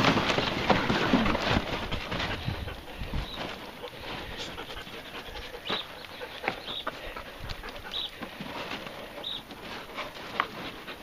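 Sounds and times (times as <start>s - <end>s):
cardboard rustling and scraping: 0.0s - 4.6s
dog panting: 1.7s - 11.0s.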